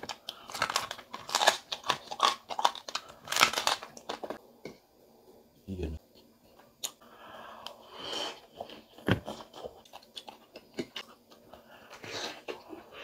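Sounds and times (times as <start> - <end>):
crunchy chewing: 0.0 - 4.2.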